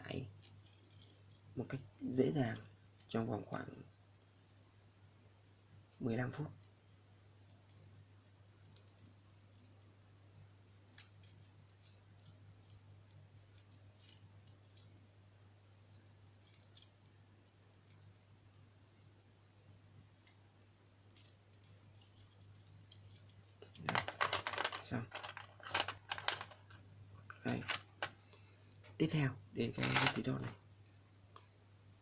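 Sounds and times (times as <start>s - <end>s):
metal wire puzzle clinking: 0.3s - 3.9s, 5.9s - 10.0s, 10.8s - 14.9s, 15.6s - 19.1s, 20.2s - 26.8s, 29.8s - 31.0s.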